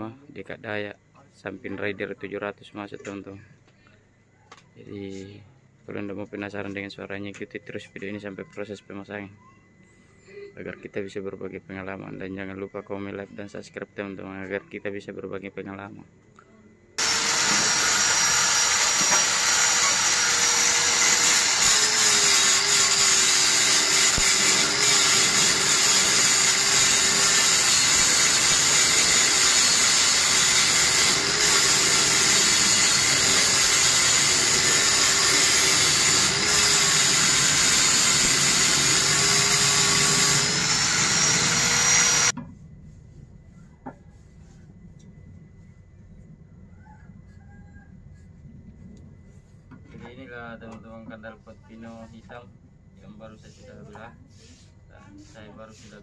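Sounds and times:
electric grinder grinding metal: 17.0s - 42.3s.

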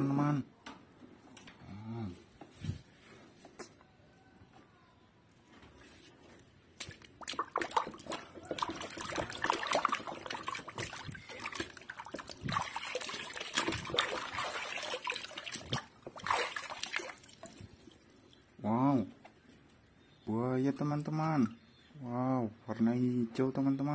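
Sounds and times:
water splashing in a tub: 6.7s - 19.1s.

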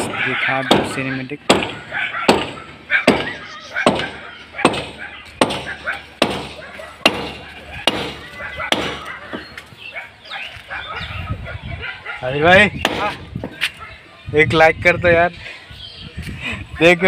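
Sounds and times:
hammer striking concrete: 0.0s - 9.4s.

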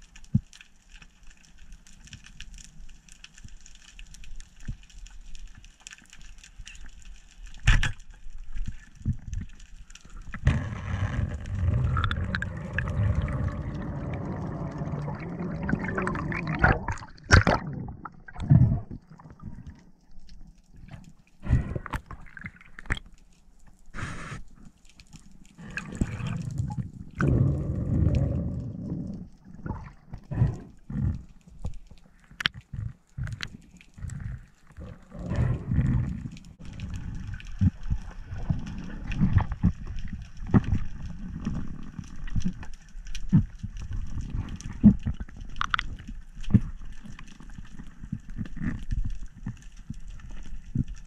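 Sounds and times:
underwater rushing gurgling water: 10.3s - 19.8s, 25.6s - 31.2s, 34.0s - 42.3s.

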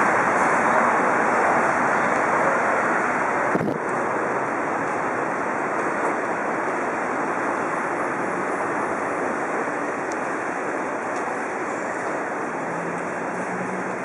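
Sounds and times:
airport terminal hall noise: 0.0s - 14.0s.

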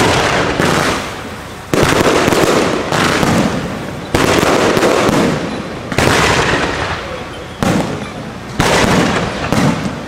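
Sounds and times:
fireworks bangs: 0.0s - 10.0s
fireworks crackling: 0.0s - 10.0s.

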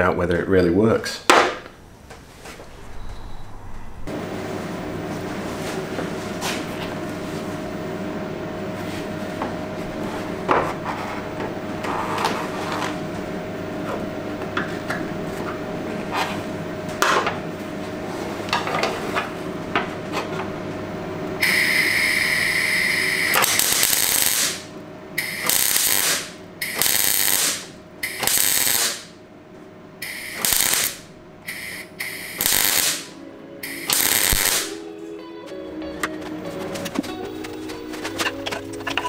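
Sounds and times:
welder arc crackling: 21.4s - 29.2s, 30.0s - 34.7s.

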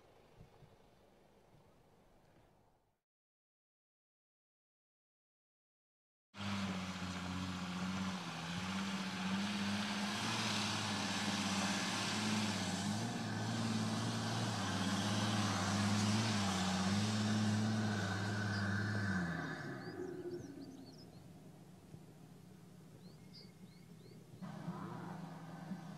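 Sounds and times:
off-road vehicle engine under load: 6.4s - 25.9s.

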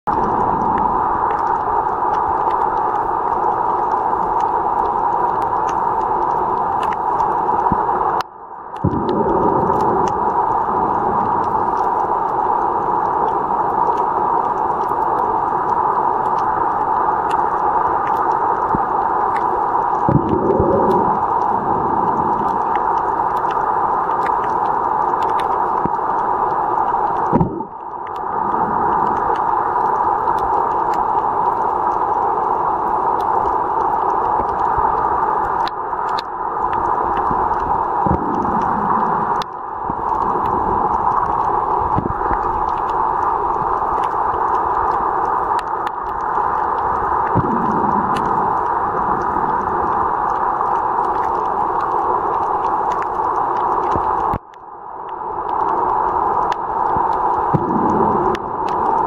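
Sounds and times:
faint clicks: 0.1s - 32.2s, 33.1s - 54.7s, 55.4s - 59.0s
muffled underwater hiss: 0.1s - 59.0s.

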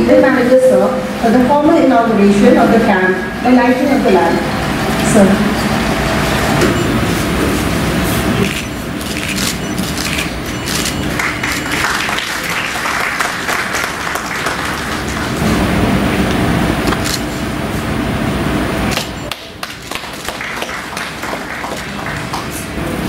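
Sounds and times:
audience clapping: 9.0s - 15.8s, 19.0s - 23.0s.

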